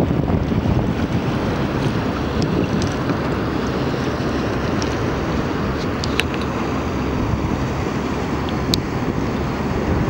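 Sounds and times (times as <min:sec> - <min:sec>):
small waves lapping: 0:00.0 - 0:10.0
water splashes: 0:00.0 - 0:10.0
wind buffeting microphone: 0:00.0 - 0:10.0.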